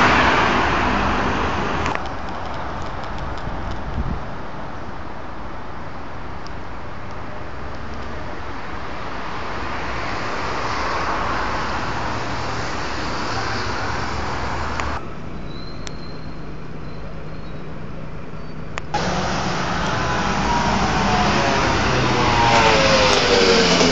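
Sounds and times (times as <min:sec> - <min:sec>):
city street traffic: 0:00.0 - 0:23.9
vehicle engine speeding up: 0:19.0 - 0:23.9.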